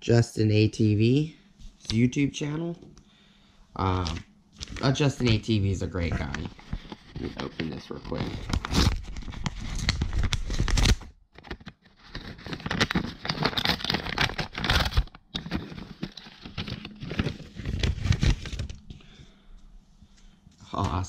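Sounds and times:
paper envelope tearing: 6.1s - 18.8s.

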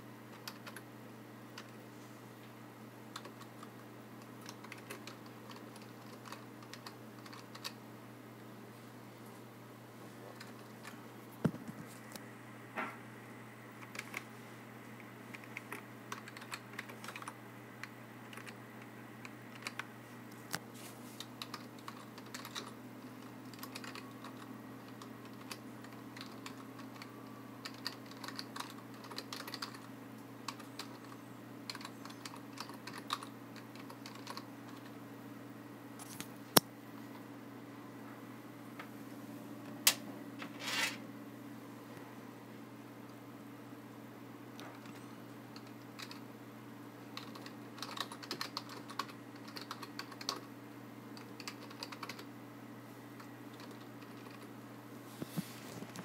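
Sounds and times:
steady low hum: 0.0s - 56.0s
cable scraping on desk: 40.4s - 41.0s.

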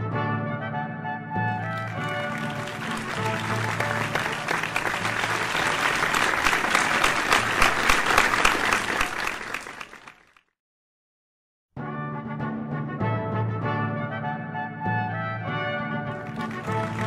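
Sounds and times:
crowd applause: 1.5s - 10.4s, 16.1s - 17.0s.

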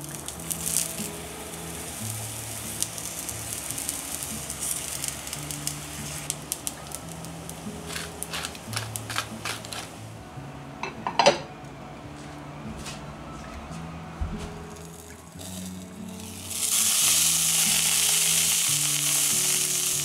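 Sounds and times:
mushrooms sizzling in oil: 0.0s - 10.2s, 14.9s - 20.0s
soft background music: 0.0s - 20.0s.

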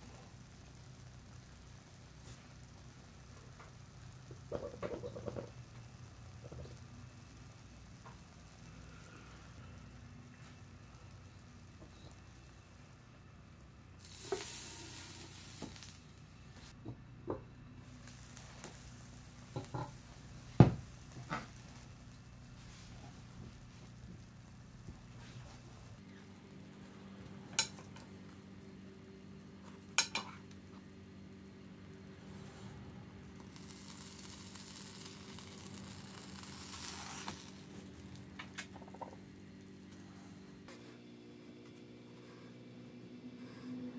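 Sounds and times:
frying pan sizzling: 0.0s - 26.6s, 27.5s - 39.9s
steady low hum: 0.0s - 43.9s
utensil scraping frying pan: 14.0s - 16.0s.

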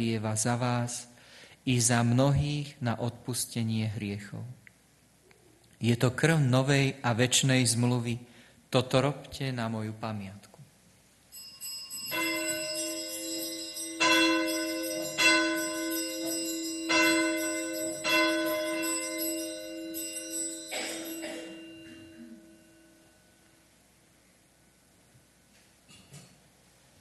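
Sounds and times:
altar bells ringing: 11.3s - 23.4s.

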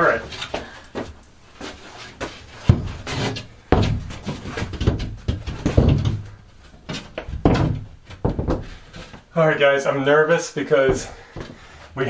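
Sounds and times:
panel bumping against framing: 2.7s - 8.8s
plywood panel knocking: 3.7s - 8.8s, 10.9s - 11.6s.

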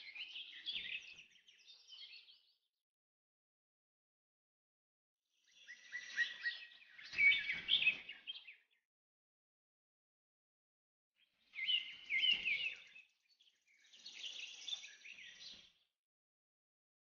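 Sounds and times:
small birds chirping: 0.0s - 2.7s, 5.4s - 8.9s, 11.2s - 16.0s.

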